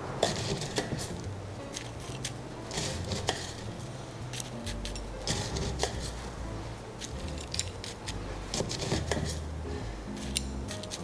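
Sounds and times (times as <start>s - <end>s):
spoon crunching crushed ice: 4.3s - 6.1s.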